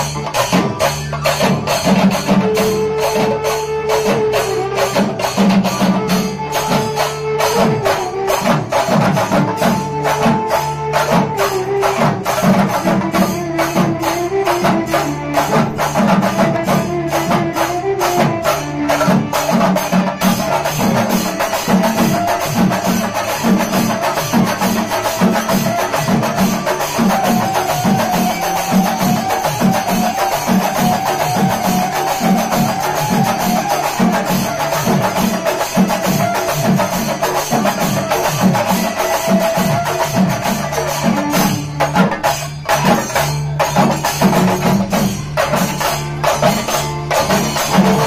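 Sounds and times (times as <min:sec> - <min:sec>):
drums struck with sticks: 0:00.0 - 0:48.0
amplified violin melody: 0:02.3 - 0:34.6.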